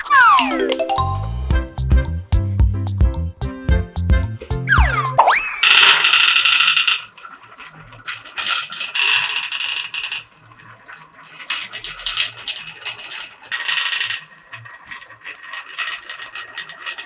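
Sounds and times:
balls rattling along a wooden track: 0:00.0 - 0:00.8, 0:04.4 - 0:17.0.

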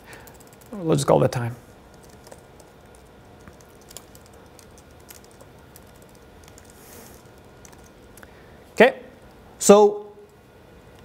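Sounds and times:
typing on a computer keyboard: 0:00.1 - 0:00.8, 0:01.9 - 0:08.3.

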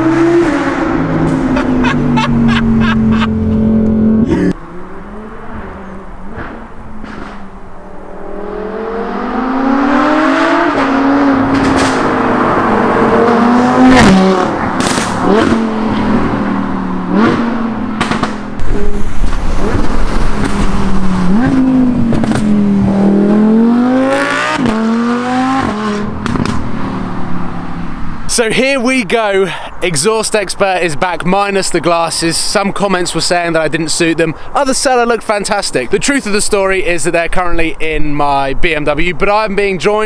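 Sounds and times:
sports car accelerating: 0:00.0 - 0:28.3
exhaust cracks: 0:10.7 - 0:24.9, 0:25.5 - 0:27.3.

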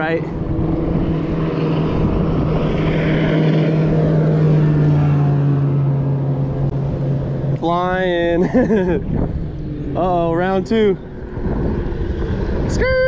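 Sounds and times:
motorboat engine passing: 0:00.0 - 0:13.0.

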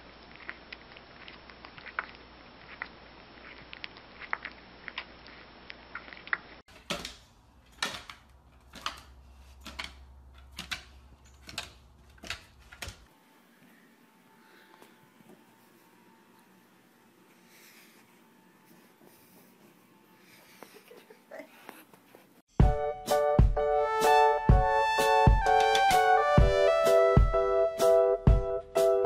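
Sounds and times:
puppy suckling clicks and smacks: 0:00.2 - 0:06.6
dog claws on wooden stairs: 0:06.7 - 0:13.1.

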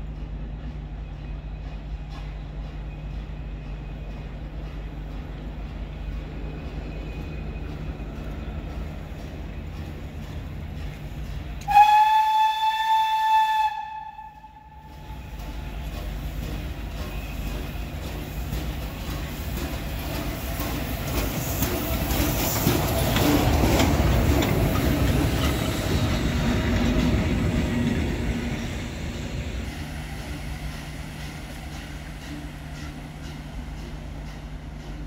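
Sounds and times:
locomotive rumble and wheel noise: 0:00.0 - 0:35.0
steam whistle blast: 0:11.6 - 0:15.1.

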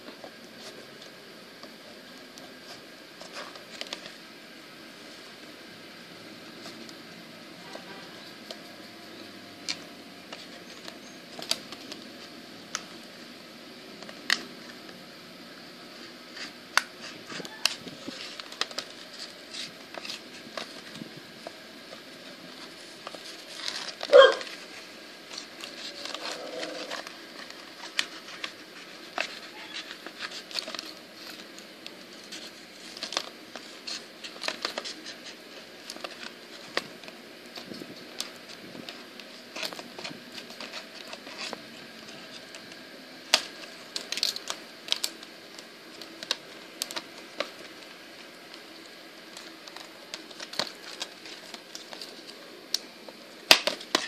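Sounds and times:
plastic packaging crackling: 0:09.6 - 0:13.1, 0:16.3 - 0:54.0.

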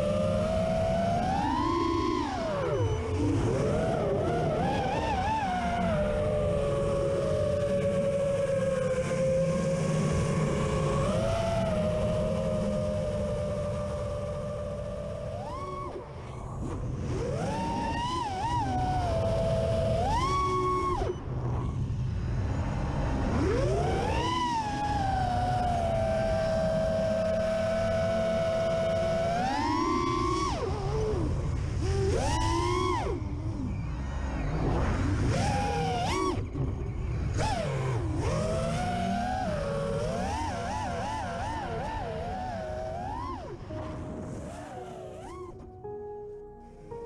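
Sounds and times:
quadcopter motors whining: 0:00.0 - 0:46.0.

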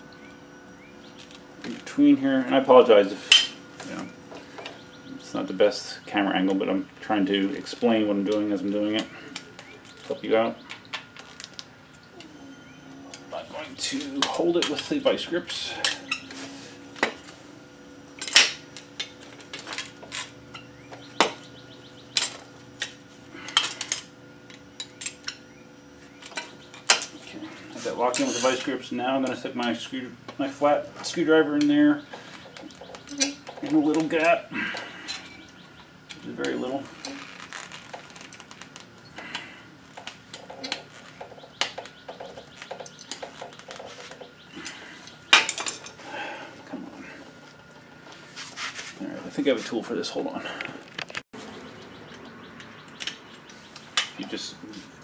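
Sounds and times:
metal tools clanking on concrete: 0:01.6 - 0:04.8, 0:12.2 - 0:17.2, 0:18.2 - 0:21.4, 0:22.1 - 0:29.9, 0:31.0 - 0:37.2, 0:39.0 - 0:47.8.

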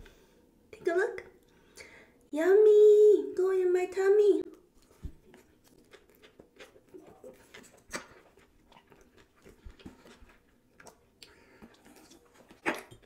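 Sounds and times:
close chewing mouth smacks: 0:04.8 - 0:13.0.

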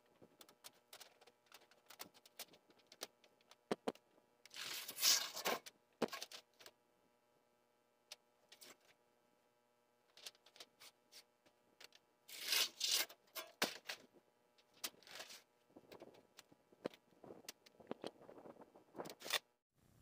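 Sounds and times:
scraping: 0:04.6 - 0:06.3.

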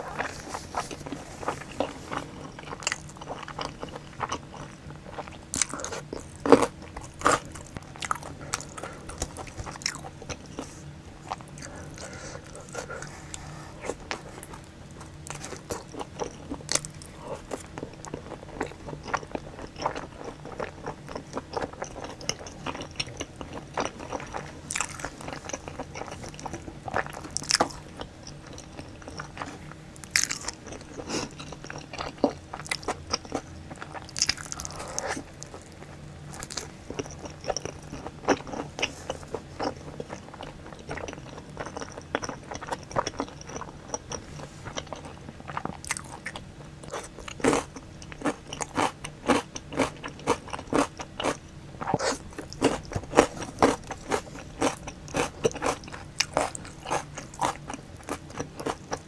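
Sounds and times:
crunching and chewing food: 0:00.0 - 0:59.0.

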